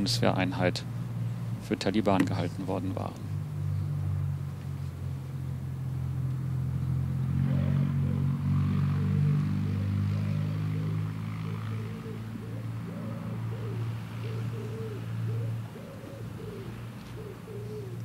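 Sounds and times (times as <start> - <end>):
pigeon cooing: 7.4 - 18.0.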